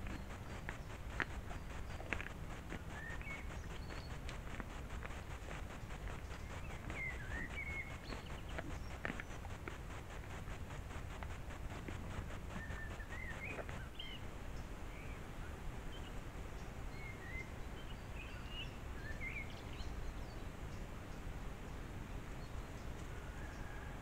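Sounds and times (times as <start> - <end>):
bird chirps and calls: 0.0 - 14.2
faint fast ticking: 0.0 - 14.2
steady low woodland noise: 0.0 - 24.0.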